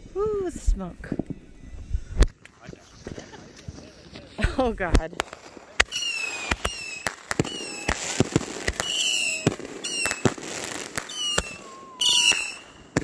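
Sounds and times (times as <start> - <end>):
firework crackling bursts: 4.7 - 13.0
fireworks bangs: 4.7 - 13.0
falling firework whistles: 5.8 - 13.0.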